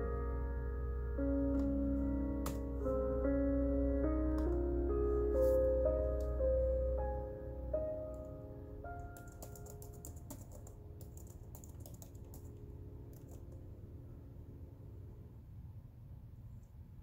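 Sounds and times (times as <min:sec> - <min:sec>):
held piano notes: 0:00.0 - 0:15.0
computer keyboard key clicks: 0:09.2 - 0:12.5.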